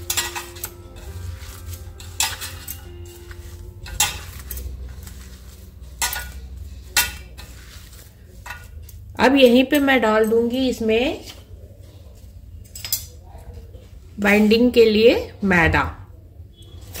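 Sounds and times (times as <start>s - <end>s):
spoon clinking against bowl: 0.0s - 5.2s, 5.8s - 7.6s
metal spoon stirring in bowl: 0.0s - 13.9s.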